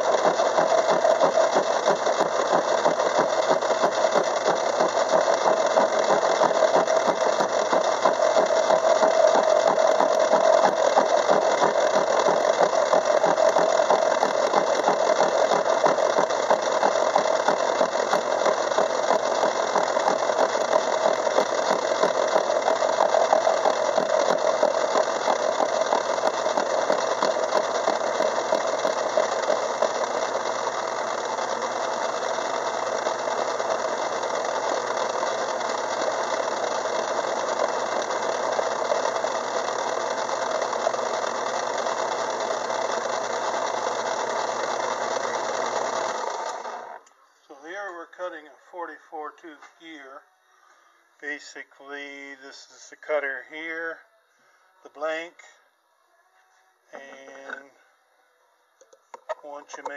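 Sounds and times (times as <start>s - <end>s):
metal lathe cutting with chatter: 0.0s - 47.0s.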